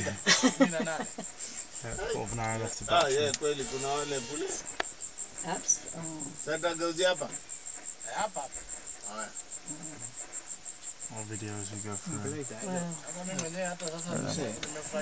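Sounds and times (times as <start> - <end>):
low voices: 0.0 - 1.0, 1.8 - 4.7, 11.1 - 15.0
insects chirping: 0.0 - 15.0.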